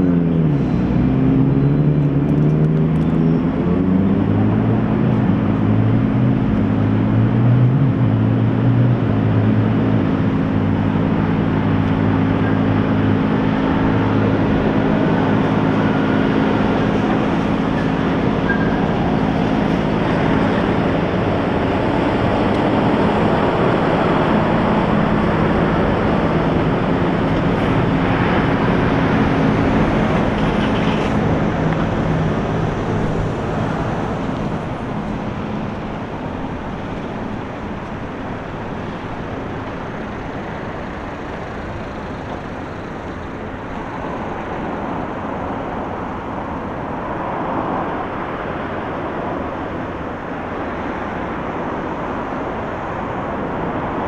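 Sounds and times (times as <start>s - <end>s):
road traffic noise: 0.0s - 54.0s
nearby engine humming: 9.3s - 46.9s.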